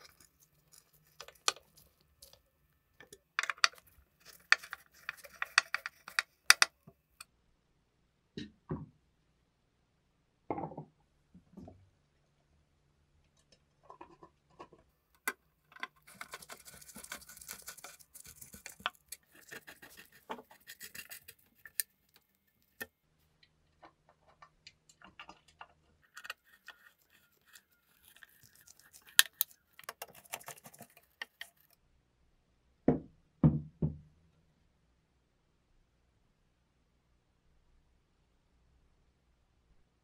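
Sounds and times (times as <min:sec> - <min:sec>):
dry crackly scraping: 0:00.0 - 0:02.5, 0:03.4 - 0:06.7, 0:15.7 - 0:22.9, 0:23.8 - 0:31.8.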